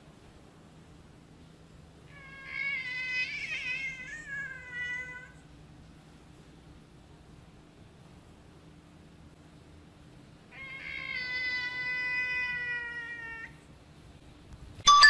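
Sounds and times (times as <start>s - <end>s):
cat meowing: 2.1s - 5.4s, 10.5s - 13.6s.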